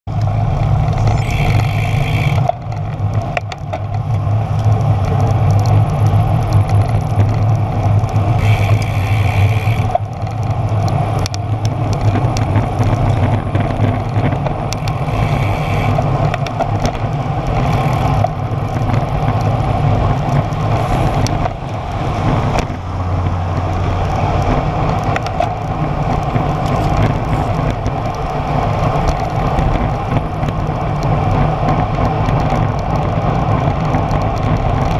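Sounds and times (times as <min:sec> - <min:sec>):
bike tyres rolling on asphalt: 0:00.1 - 0:34.9
wind buffeting microphone: 0:00.4 - 0:34.9.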